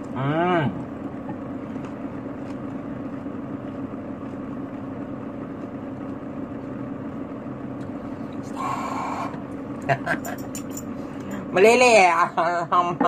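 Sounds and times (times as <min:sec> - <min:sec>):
low machine hum: 0:00.0 - 0:13.0.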